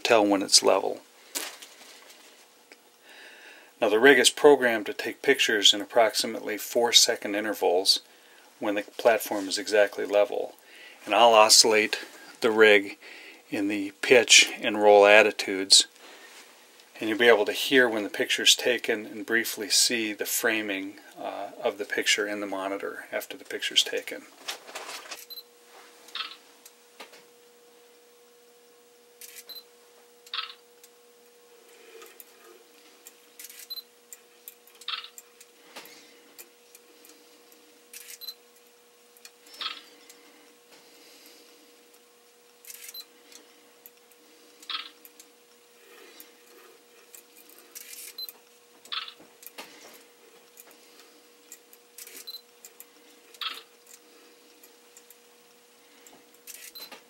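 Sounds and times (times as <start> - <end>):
faint steady hum: 0.0 - 57.0
camera electronic clicks: 30.3 - 30.6, 34.7 - 35.2.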